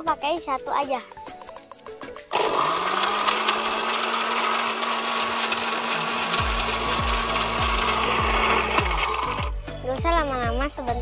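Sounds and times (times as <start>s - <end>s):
countertop blender running: 2.3s - 9.6s.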